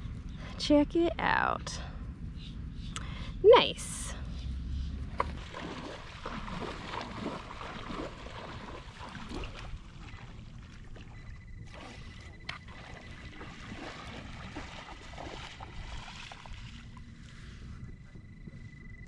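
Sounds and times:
low microphone rumble: 0:00.0 - 0:19.0
shallow seawater sloshing: 0:05.1 - 0:17.8
faint steady high tone: 0:10.0 - 0:13.8.

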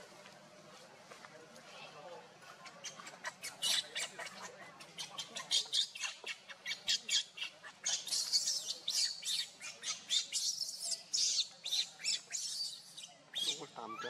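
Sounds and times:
baby monkey squealing: 0:02.8 - 0:14.0.

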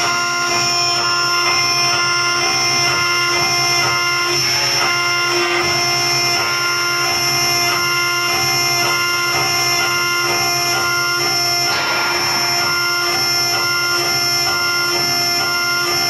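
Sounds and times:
router spindle high whine: 0:00.0 - 0:16.0.

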